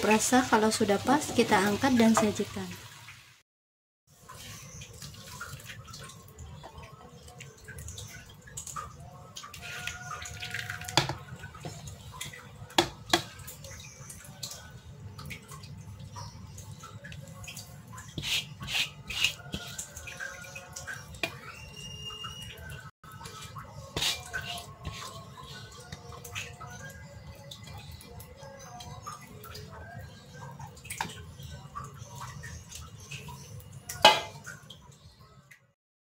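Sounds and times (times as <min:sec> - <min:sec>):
food plopping and scraping: 0:04.2 - 0:14.1, 0:15.5 - 0:22.4, 0:23.1 - 0:28.0.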